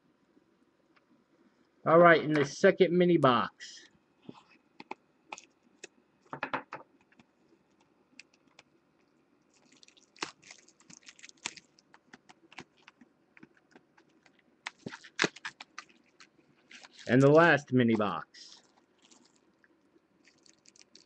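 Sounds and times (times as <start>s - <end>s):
small crackles and taps: 4.3s - 17.2s
plastic wrap crinkling and tearing: 9.5s - 17.4s, 18.5s - 19.6s, 20.2s - 21.0s.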